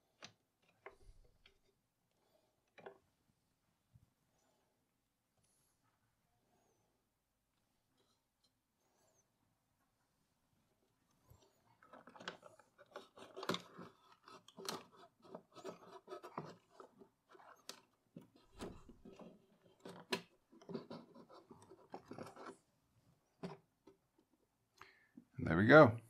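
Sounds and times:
scraping and rubbing: 11.2 - 24.1.

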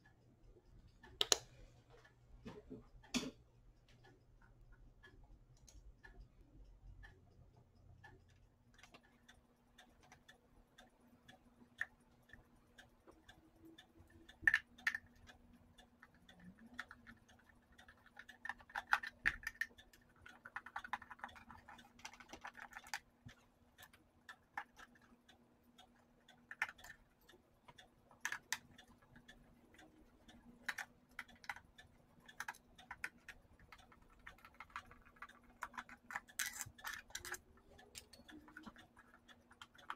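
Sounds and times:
faint steady hum: 0.0 - 39.9
screwdriver clicking and scraping: 32.2 - 39.9
plastic housing clicks: 35.6 - 38.2.

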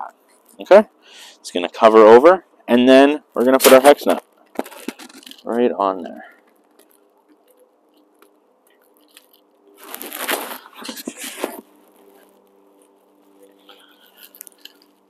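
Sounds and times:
faint steady hum: 0.0 - 15.0
crunching rustle: 3.3 - 15.0.

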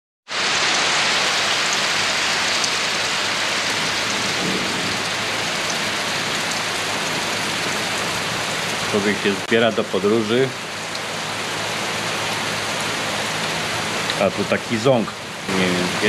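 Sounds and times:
steady rain hissing: 0.3 - 16.0
single raindrops: 2.4 - 9.0.

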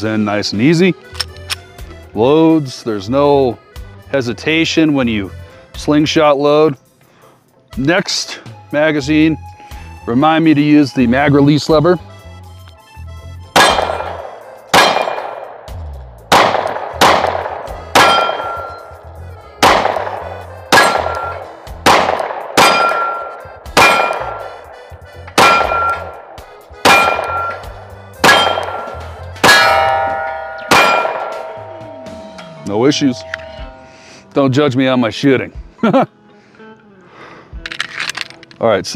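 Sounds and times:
pistol shots: 13.6 - 18.8, 19.6 - 31.6
steel plate ringing: 18.0 - 19.1, 22.6 - 24.5, 25.3 - 26.2, 26.8 - 35.0.

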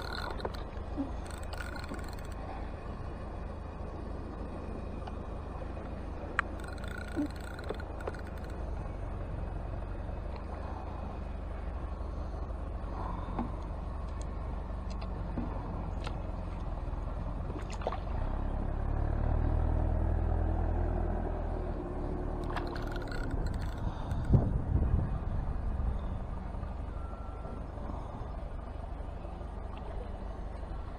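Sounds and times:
fishing reel clicks: 0.0 - 0.6, 1.2 - 2.4, 6.4 - 8.6, 22.4 - 24.3
wind on microphone: 23.3 - 26.4.

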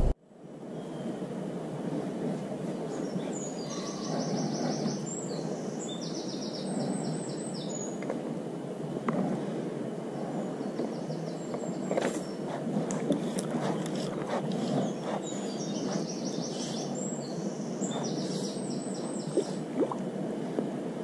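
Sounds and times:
low background rush: 0.0 - 21.0
songbird singing: 2.5 - 8.2, 9.9 - 20.0.

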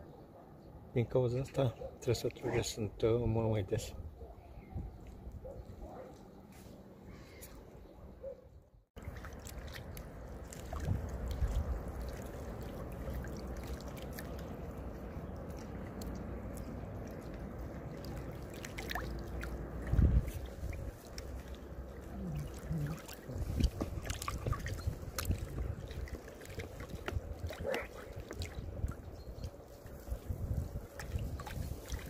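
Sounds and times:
small waves lapping against bank: 9.0 - 32.0
wind gusting on microphone: 10.7 - 12.0, 19.6 - 21.1, 22.1 - 32.0.

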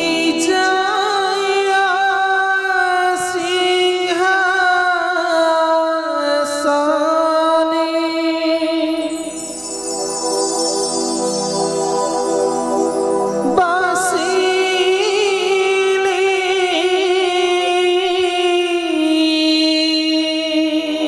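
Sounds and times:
person singing wavering notes: 7.7 - 21.0.

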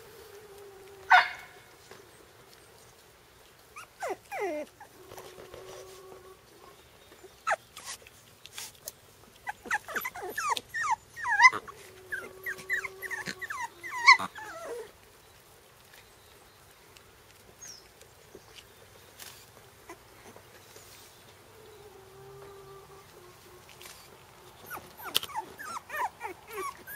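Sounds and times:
puppies whimpering and yelping: 3.7 - 8.0, 9.3 - 15.0, 21.6 - 26.9.

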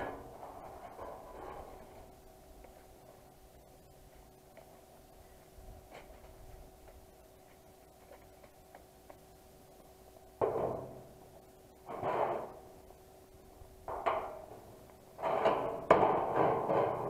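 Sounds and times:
thin steel sheet banging: 10.4 - 11.1, 11.9 - 12.6, 13.9 - 17.0.

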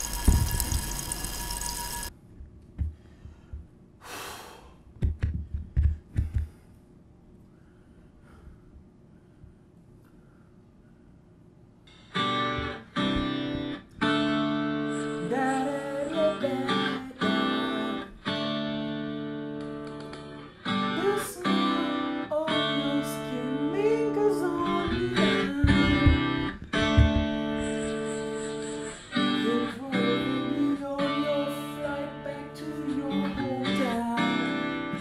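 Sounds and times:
strummed acoustic guitar: 12.0 - 35.0.

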